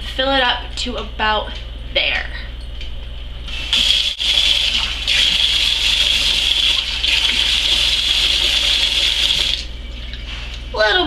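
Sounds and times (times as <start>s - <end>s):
faucet water filling bottle: 3.7s - 9.7s.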